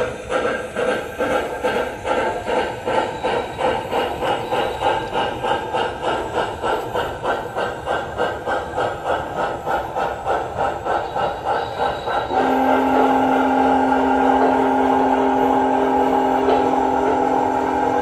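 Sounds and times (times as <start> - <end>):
model train chuffing: 0.0 - 18.0
multi-note steam whistle: 10.8 - 18.0.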